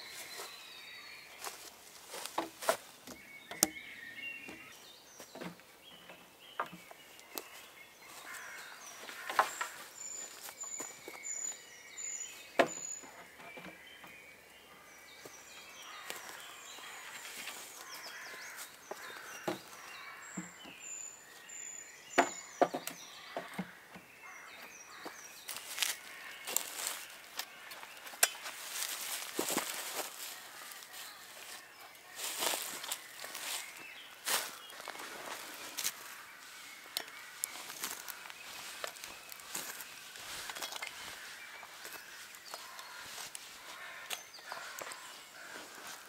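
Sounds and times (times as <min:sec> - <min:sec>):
woodland birdsong: 0:00.0 - 0:46.0
wooden poles knocking: 0:02.1 - 0:03.8, 0:09.0 - 0:09.8, 0:12.6 - 0:13.8, 0:18.9 - 0:20.7, 0:22.2 - 0:24.0.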